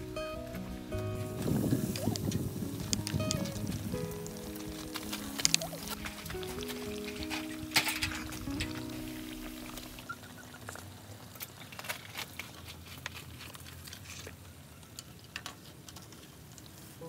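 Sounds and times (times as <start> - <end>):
background music: 0.0 - 10.6
oil frying with crackles and pops: 1.4 - 17.0.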